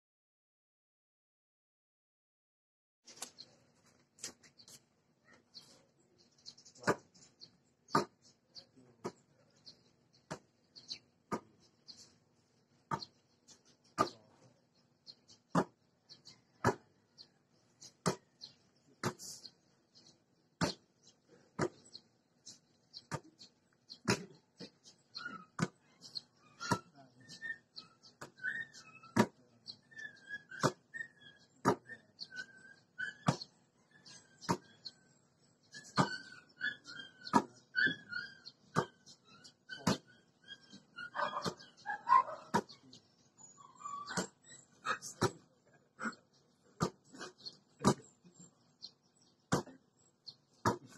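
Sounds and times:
high bird chirps: 0:12.9 - 0:50.9
faint high chirps: 0:35.7 - 0:48.6.

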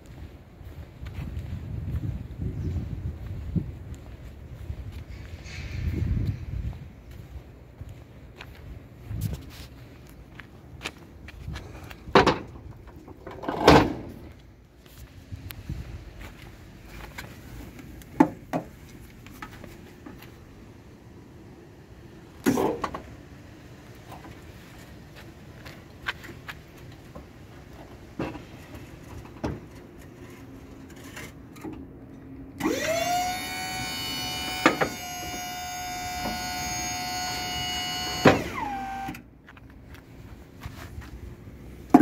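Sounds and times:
hydraulic pump motor whining: 0:32.6 - 0:39.2.

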